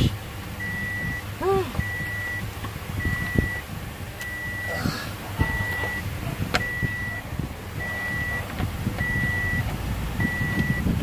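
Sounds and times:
low rumble: 0.0 - 11.0
electronic warning beeper: 0.6 - 2.4, 3.0 - 3.6, 4.2 - 4.8, 5.4 - 7.2, 7.8 - 8.4, 9.0 - 9.6, 10.2 - 10.9.

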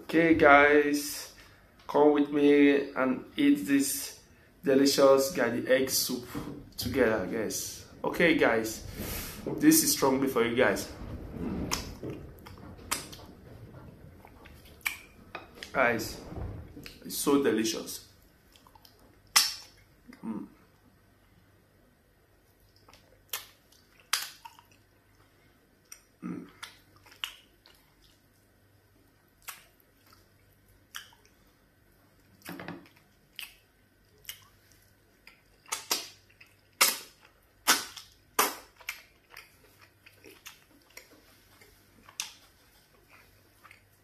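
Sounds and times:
wet lip smacks while eating: 22.7 - 24.8, 25.9 - 28.2, 29.4 - 31.4, 32.4 - 41.1, 42.1 - 42.4.

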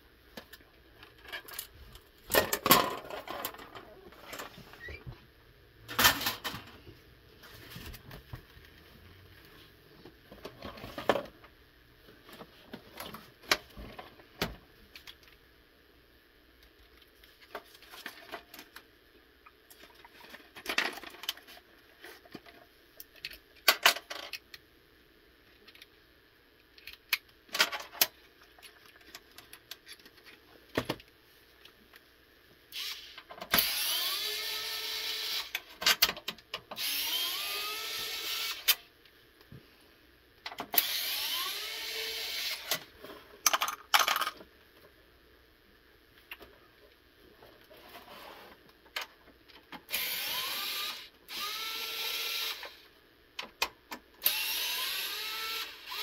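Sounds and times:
metal parts clattering: 2.3 - 4.5
electric screwdriver whirring: 32.8 - 35.6, 36.8 - 38.8, 40.8 - 42.8, 49.9 - 52.8, 54.2 - 56.0.

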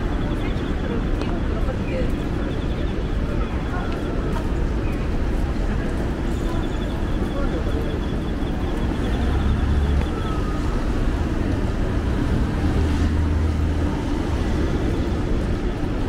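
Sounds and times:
passing traffic rumbling: 0.0 - 16.0.

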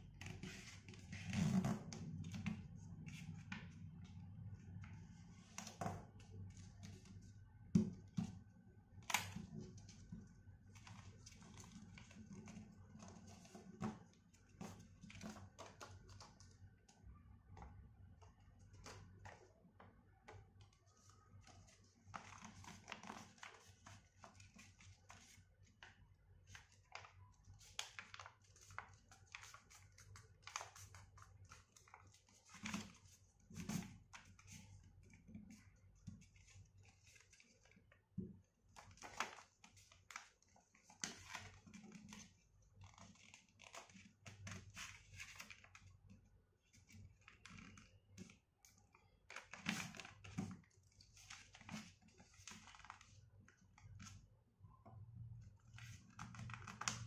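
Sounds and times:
paper rustling and crinkling: 20.9 - 25.9, 26.5 - 37.9, 38.7 - 45.8, 46.7 - 53.2.

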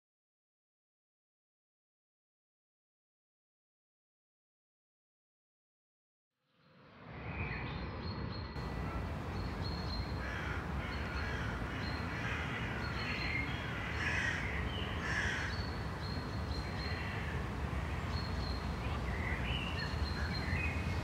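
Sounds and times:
road and wind rumble: 7.0 - 21.0
crows cawing: 10.0 - 15.8.

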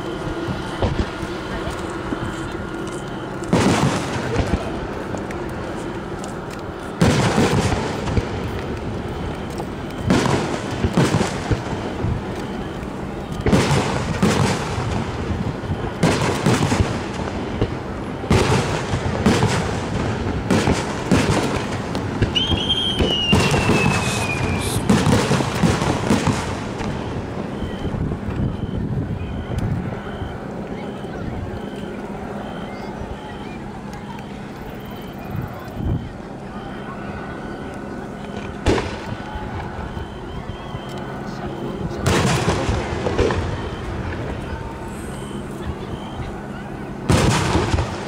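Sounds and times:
fireworks bursting: 0.0 - 48.0
whistle falling in pitch: 22.3 - 25.0, 27.6 - 41.1.

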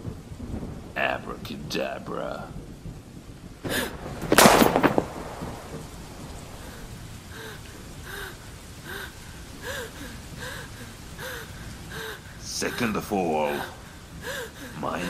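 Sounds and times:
steady rain: 0.0 - 15.0
loud crash: 3.6 - 6.0.

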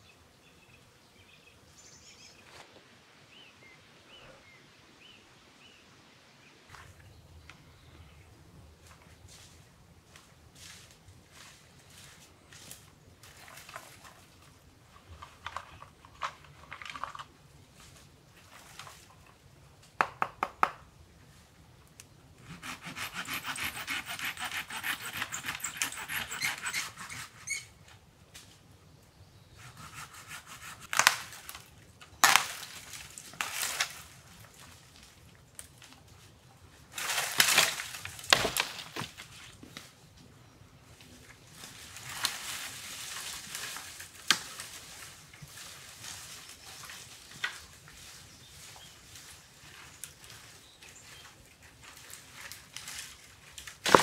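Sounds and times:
crackling and rubbing of branches: 8.8 - 19.5, 22.6 - 28.6, 29.6 - 40.0, 40.8 - 54.0
dry branches snapping: 30.8 - 34.2, 37.0 - 39.9, 41.7 - 45.1, 46.8 - 47.7, 51.8 - 54.0.

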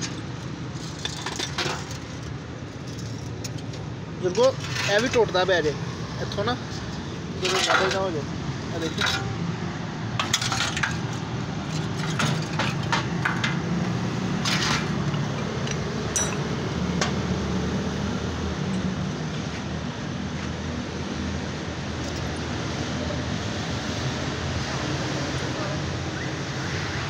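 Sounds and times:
light metallic clinks and taps: 15.0 - 17.2.

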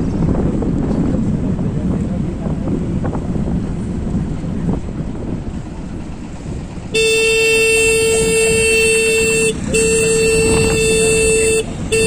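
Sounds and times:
scooter road and wind noise: 0.0 - 12.0
vehicle horn: 6.9 - 12.0.

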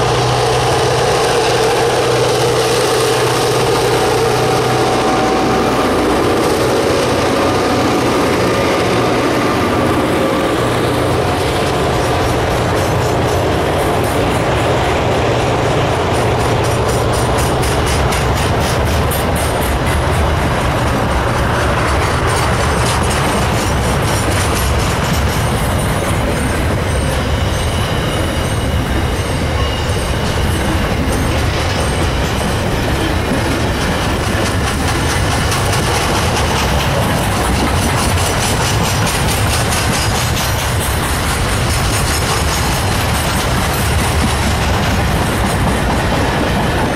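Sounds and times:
freight train wheels clacking: 0.0 - 46.9
train rumble: 0.0 - 46.9
high wheel squeal: 16.0 - 44.5.

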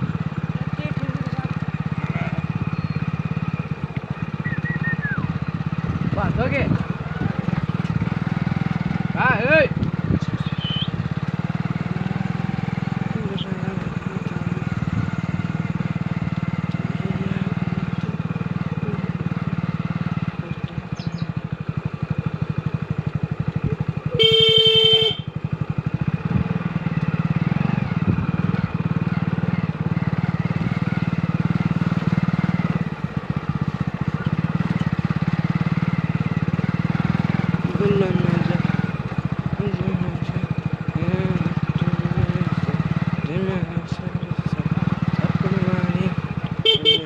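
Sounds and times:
motorcycle engine running: 0.0 - 47.0
horn honk: 10.4 - 11.0, 24.0 - 25.5, 46.5 - 47.0.

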